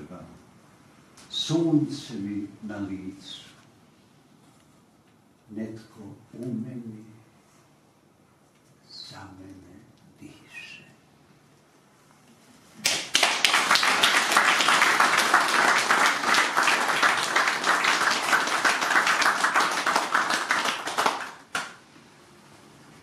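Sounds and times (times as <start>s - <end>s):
audience applauding: 12.8s - 21.8s.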